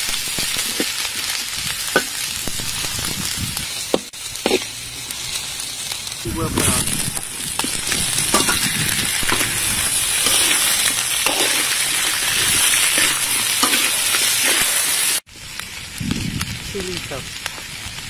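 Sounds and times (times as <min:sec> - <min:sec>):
prawns sizzling in oil: 0:00.0 - 0:18.0
scraping stirring strokes: 0:07.6 - 0:14.9.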